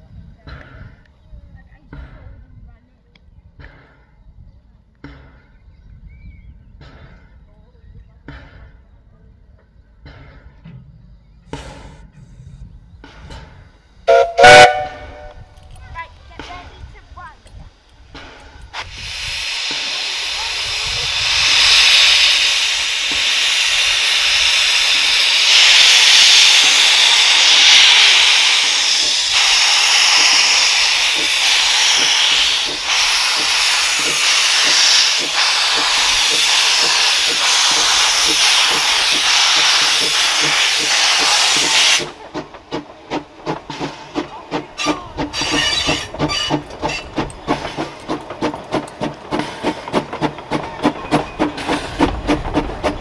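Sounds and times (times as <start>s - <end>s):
steam locomotive exhaust chuffs: 3.4s - 53.0s
steam hissing: 11.4s - 53.0s.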